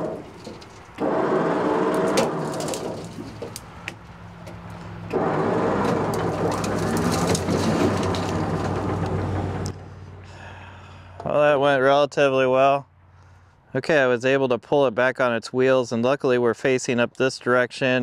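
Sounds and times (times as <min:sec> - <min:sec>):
branches cracking: 0:00.0 - 0:09.2
vehicle crunching through brush: 0:00.0 - 0:10.2
truck engine running: 0:00.0 - 0:11.2.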